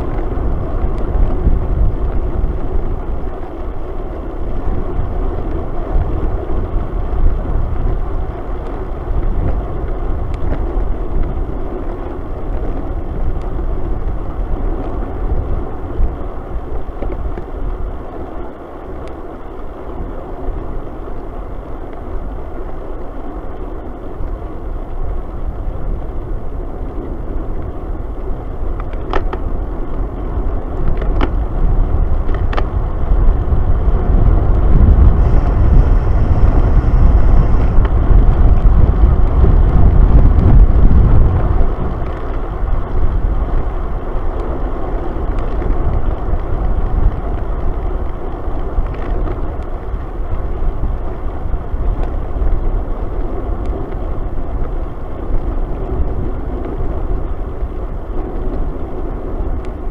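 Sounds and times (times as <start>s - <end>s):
road and tyre noise: 0.0s - 59.9s
wind rushing over microphone: 0.0s - 59.9s.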